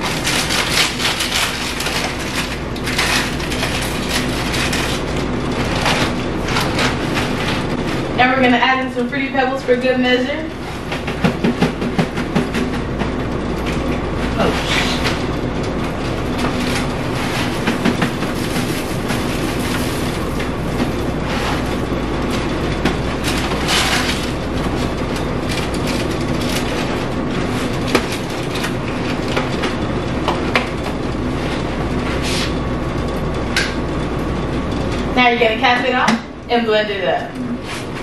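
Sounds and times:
air conditioner humming: 0.0 - 38.0
cafe machinery: 0.0 - 38.0.

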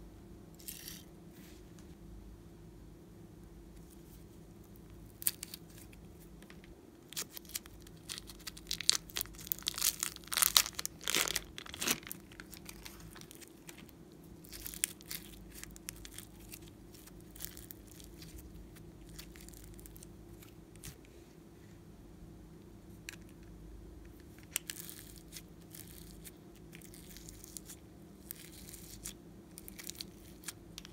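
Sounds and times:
slime beads crackling in plastic bag: 5.1 - 6.0, 7.1 - 20.9, 24.4 - 30.9.

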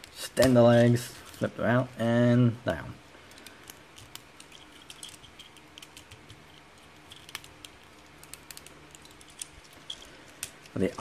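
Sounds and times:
plastic toy parts clicking: 3.3 - 11.0.

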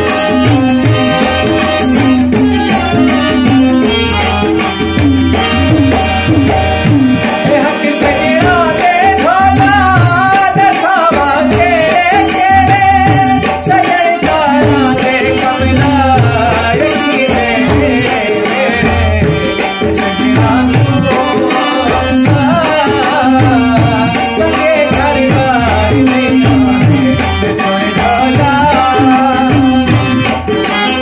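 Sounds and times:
hand drum rhythm: 0.0 - 31.0
man singing a folk song: 7.4 - 29.9.

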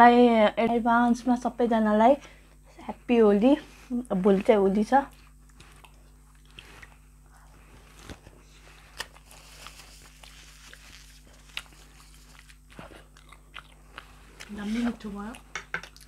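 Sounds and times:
faint steady hum: 0.0 - 16.0
people chewing and eating: 3.7 - 16.0.

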